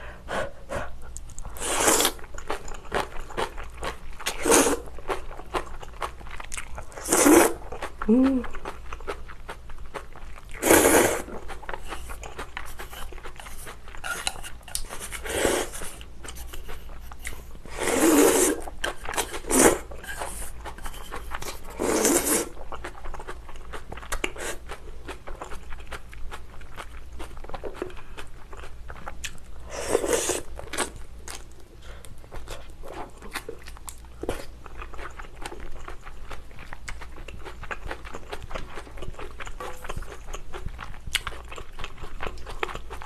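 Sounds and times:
wet chewing: 1.1s - 43.0s
slurping noodles: 1.5s - 2.3s, 4.3s - 4.9s, 6.9s - 7.6s, 10.6s - 12.2s, 12.8s - 16.0s, 17.7s - 22.6s, 29.7s - 30.5s.

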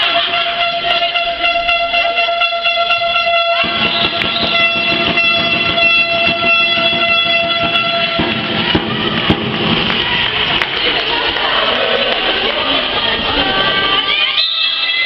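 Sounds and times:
din of indoor sports hall: 0.0s - 3.7s, 7.2s - 15.0s
horn long steady note: 0.0s - 10.5s.

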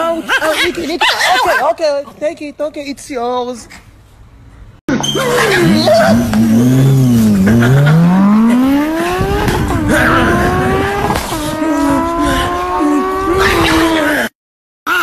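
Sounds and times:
race car engine revving: 5.2s - 14.2s.

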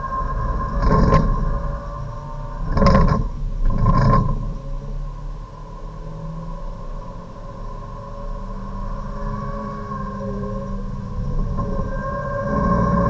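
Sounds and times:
loud rough rumble: 0.0s - 13.0s
race car engine at full throttle: 0.0s - 13.0s.

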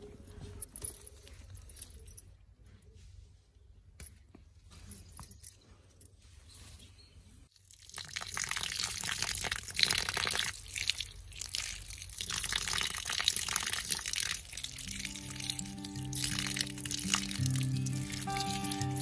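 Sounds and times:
water pouring and splashing: 7.5s - 19.0s.

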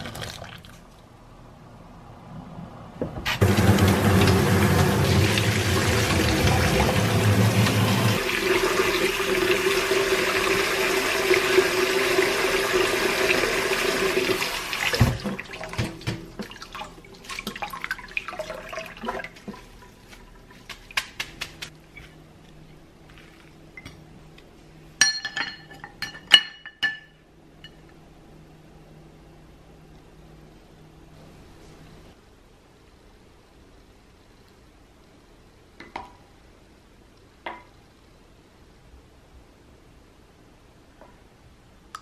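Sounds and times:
tap running water into sink: 3.3s - 21.7s
dishes clinking: 25.0s - 27.8s.

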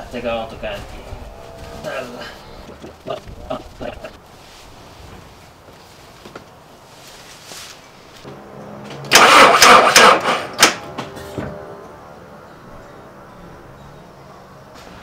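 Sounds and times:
car engine starting: 8.2s - 12.0s
car engine cranking: 9.0s - 11.0s.

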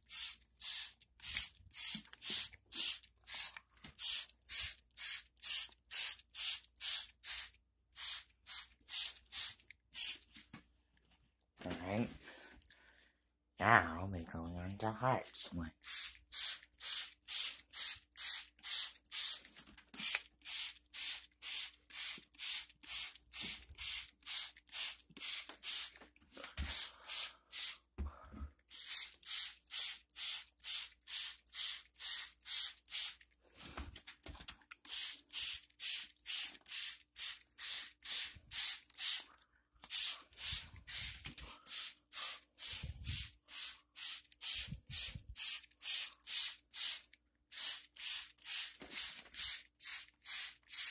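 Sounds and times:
spray bottle hissing sprays: 0.0s - 10.4s, 15.8s - 27.9s, 28.7s - 33.2s, 34.8s - 50.9s.

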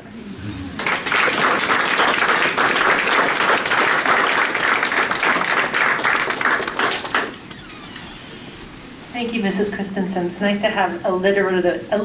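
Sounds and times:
audience applauding: 0.6s - 7.6s.

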